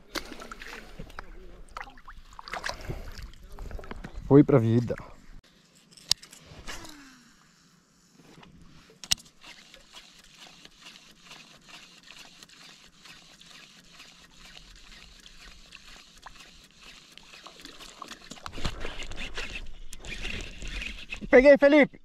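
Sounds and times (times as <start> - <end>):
water trickling and lapping: 0.0 - 5.4, 8.9 - 21.3
small clicks and ticks: 9.0 - 21.3.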